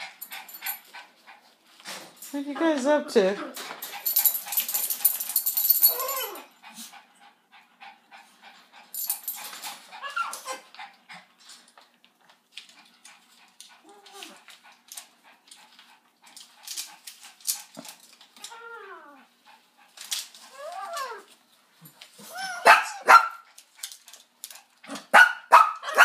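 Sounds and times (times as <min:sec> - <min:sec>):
small dog whimpering and yipping: 0:05.8 - 0:06.5, 0:10.0 - 0:10.7, 0:13.8 - 0:14.4, 0:18.4 - 0:19.3, 0:20.5 - 0:21.3, 0:22.2 - 0:23.0.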